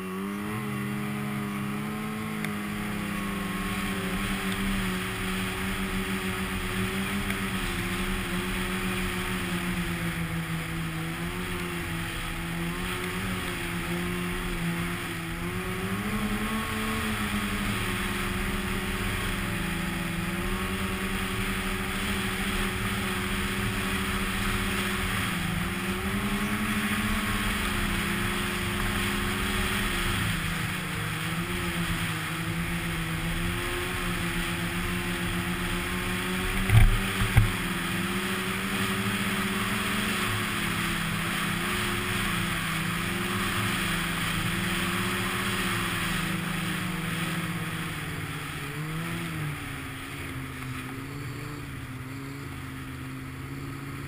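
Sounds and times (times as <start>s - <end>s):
snowmobile engine running: 0.0s - 54.0s.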